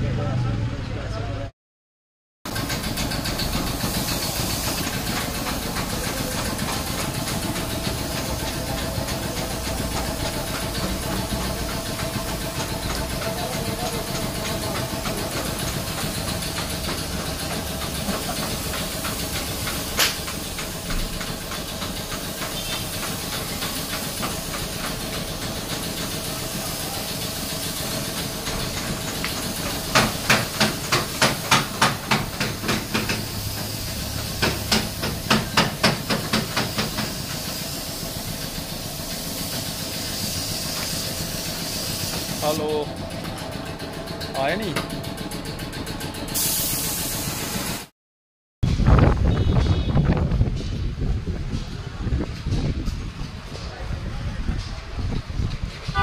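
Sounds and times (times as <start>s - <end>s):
spray gun hissing: 3.3s - 9.7s, 22.4s - 42.8s, 46.4s - 47.9s.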